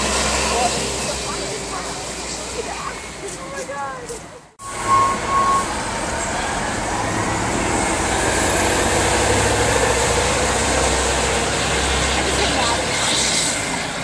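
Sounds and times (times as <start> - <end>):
bus engine accelerating with whine: 0.0 - 14.0
short high beeps: 4.6 - 5.8.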